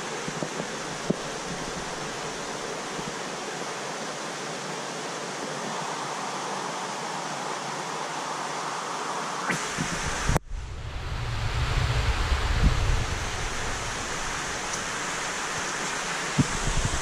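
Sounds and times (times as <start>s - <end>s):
water rushing in aquarium filter: 9.5s - 17.0s.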